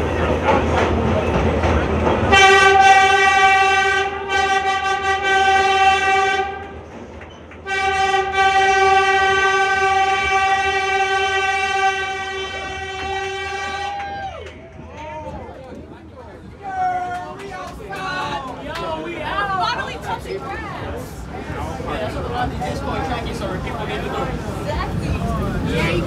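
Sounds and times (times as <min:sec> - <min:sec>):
train horn blasts: 0:02.3 - 0:06.9, 0:07.6 - 0:14.2.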